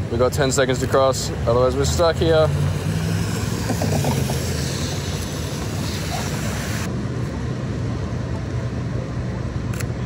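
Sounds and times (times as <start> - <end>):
rumble of passing vehicles: 0.0 - 10.0
camera shutter click: 9.7 - 10.0.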